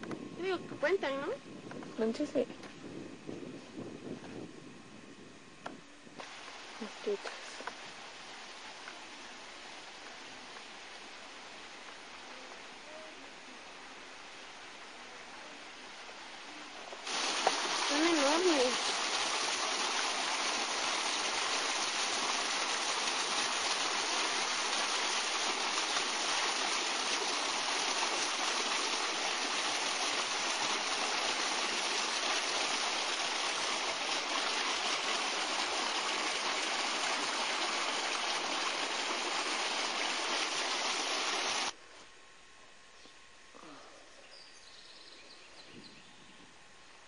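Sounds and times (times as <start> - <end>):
water pouring into a pond: 6.2 - 12.3, 17.0 - 41.8.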